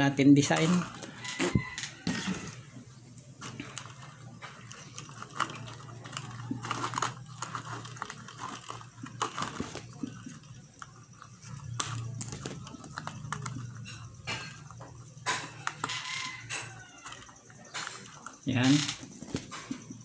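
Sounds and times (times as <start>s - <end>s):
plastic strips crinkling: 3.4s - 14.5s.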